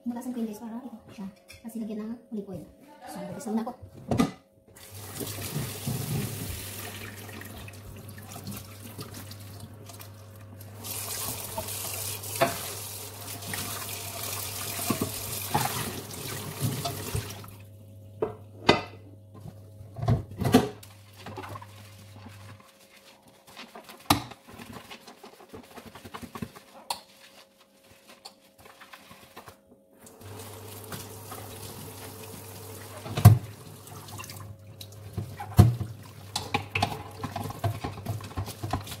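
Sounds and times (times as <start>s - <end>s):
tap water running into sink: 4.8s - 17.6s, 30.0s - 39.0s
pots being scrubbed: 4.9s - 17.5s, 20.9s - 29.6s, 30.2s - 39.0s.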